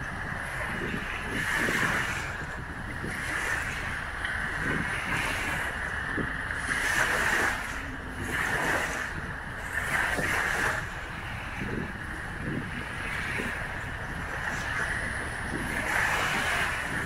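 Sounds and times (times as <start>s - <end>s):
small waves washing onto shore: 0.0s - 17.0s
wind rumble on microphone: 0.0s - 17.0s.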